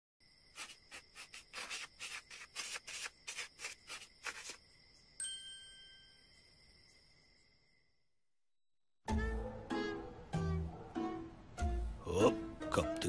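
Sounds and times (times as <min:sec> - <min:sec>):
scratchy rubbing strokes: 0:00.5 - 0:04.6
faint steady high tone: 0:04.9 - 0:08.0
bright chime: 0:05.2 - 0:07.6.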